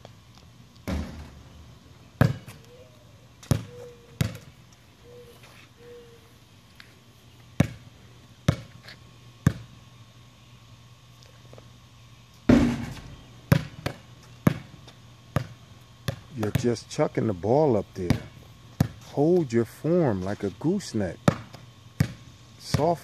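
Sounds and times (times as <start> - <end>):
dull thump: 0.8 - 1.4, 12.5 - 13.2
basketball bouncing on concrete: 0.8 - 1.6, 2.2 - 2.7, 3.4 - 4.6, 7.6 - 7.9, 8.5 - 9.7, 12.5 - 16.8, 18.0 - 19.1, 21.2 - 23.0.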